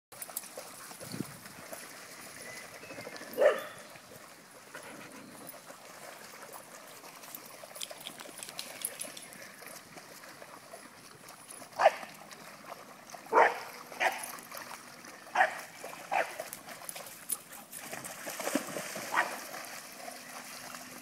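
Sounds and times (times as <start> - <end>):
water splashing in stream: 0.1 - 21.0
dog barking: 3.4 - 3.8, 11.8 - 12.0, 13.3 - 14.2, 15.4 - 16.4, 19.1 - 19.3.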